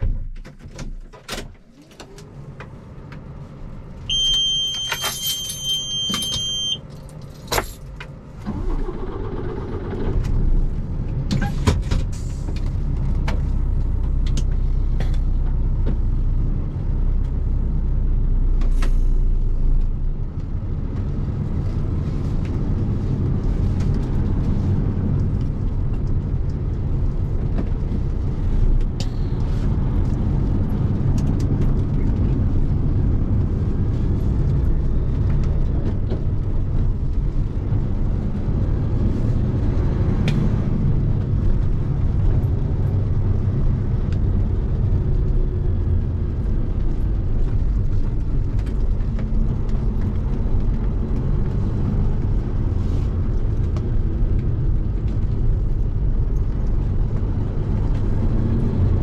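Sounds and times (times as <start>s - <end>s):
diesel truck engine: 0.0s - 59.0s
two-tone dashboard warning beep: 4.1s - 6.8s
ignition clicks: 4.1s - 10.4s.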